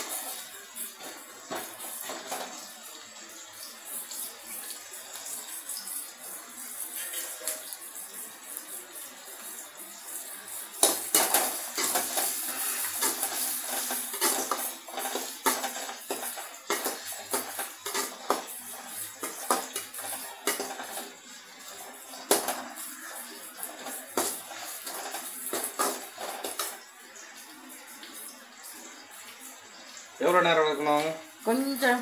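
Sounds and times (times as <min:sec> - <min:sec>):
onions sizzling in oil: 0:00.0 - 0:32.0
metal spatula scraping a pan: 0:10.1 - 0:26.8.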